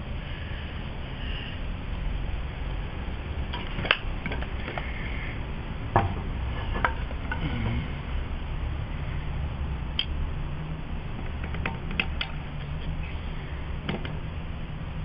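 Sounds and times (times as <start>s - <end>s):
steady low rumble: 0.0s - 15.0s
sharp clicks and knocks: 3.5s - 4.9s, 11.2s - 13.0s, 13.8s - 14.2s.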